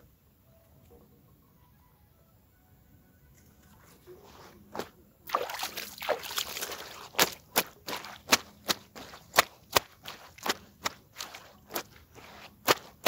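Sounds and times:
wet rubbing and sloshing: 4.2s - 13.0s
wet clothes slapping: 4.7s - 13.0s.

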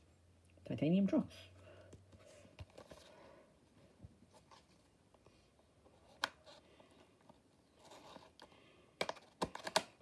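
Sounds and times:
plastic blister pack clicks and scrapes: 7.9s - 10.0s.

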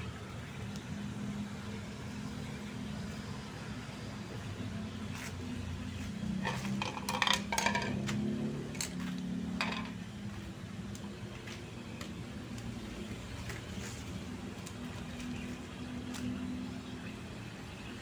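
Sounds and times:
metallic clinks and knocks: 6.4s - 8.1s, 9.6s - 10.0s.

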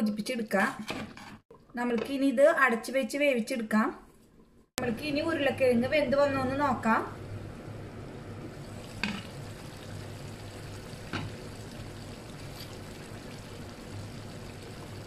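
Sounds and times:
curry bubbling in pot: 8.4s - 15.0s.

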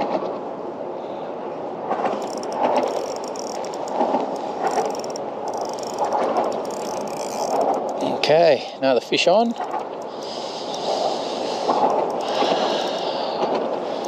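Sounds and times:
fishing reel ticking: 2.1s - 8.4s, 9.5s - 14.0s.

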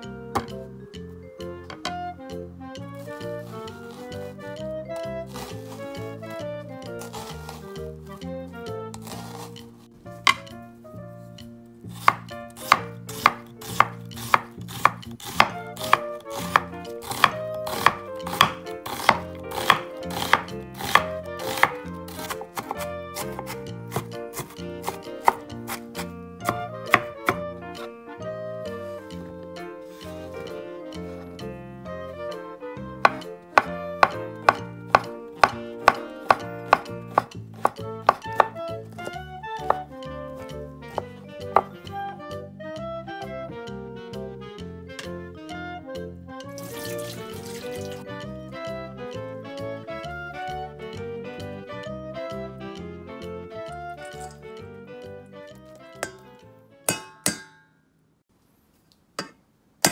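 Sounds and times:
background music: 0.0s - 57.6s
knife chopping on wooden board: 0.4s - 0.6s, 5.0s - 6.0s, 7.0s - 7.6s, 8.9s - 9.6s, 10.3s - 10.6s, 11.9s - 27.4s, 33.0s - 39.8s, 40.4s - 41.8s, 59.2s - 59.9s.

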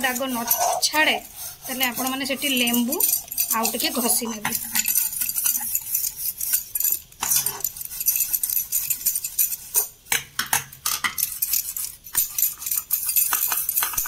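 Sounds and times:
steel wool scraping brass: 0.0s - 9.9s.

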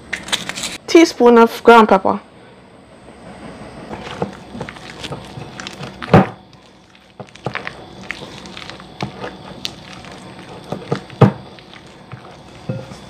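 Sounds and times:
spatula scraping thick mixture: 3.9s - 13.0s.

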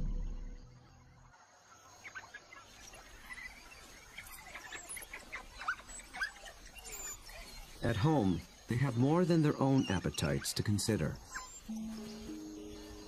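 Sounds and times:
quiet bush ambience: 0.0s - 13.0s
high bird chirps and twitters: 2.0s - 13.0s
music track: 11.7s - 13.0s.

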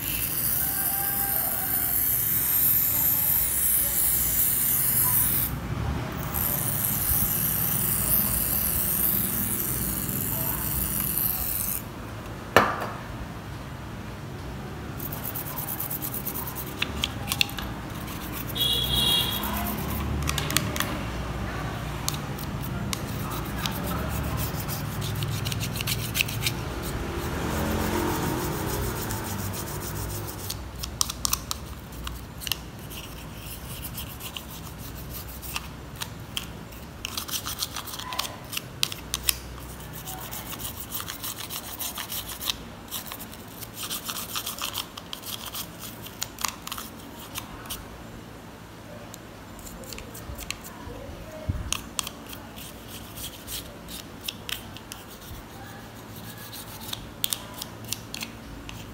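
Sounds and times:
brush scrubbing plastic: 15.0s - 20.9s, 21.9s - 47.8s, 52.0s - 58.9s.

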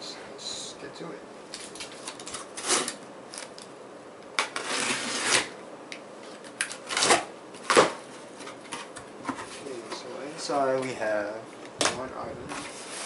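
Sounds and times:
blade cutting packing tape: 1.7s - 3.5s, 4.4s - 5.6s, 6.6s - 7.9s.

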